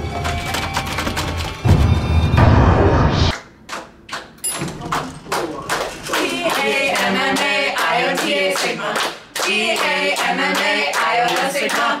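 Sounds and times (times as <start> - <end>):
hands clapping in time: 3.3 - 12.0
group singing a chant: 6.1 - 12.0.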